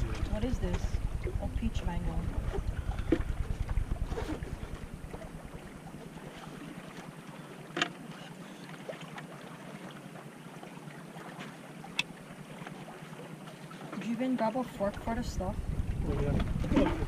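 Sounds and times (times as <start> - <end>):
wind buffeting the microphone: 0.0 - 5.9, 14.8 - 17.0.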